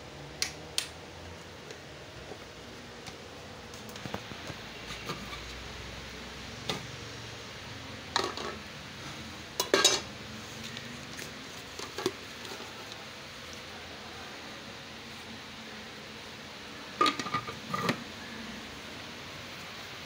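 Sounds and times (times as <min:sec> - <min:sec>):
plastic clattering in metal bowl: 0:08.2 - 0:08.6, 0:09.6 - 0:10.1, 0:17.0 - 0:18.0.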